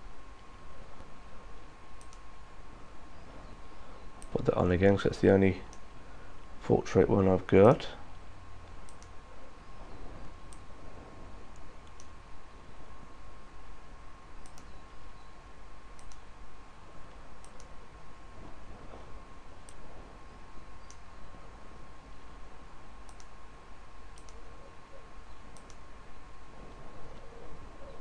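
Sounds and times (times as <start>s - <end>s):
faint steady tone: 0.0s - 28.0s
computer mouse clicking: 2.0s - 2.3s, 4.2s - 4.4s, 8.6s - 9.2s, 10.4s - 10.7s, 11.5s - 12.2s, 14.4s - 14.8s, 16.0s - 16.3s, 17.1s - 17.8s, 20.8s - 21.0s, 23.0s - 23.4s, 24.1s - 24.4s, 25.5s - 25.8s.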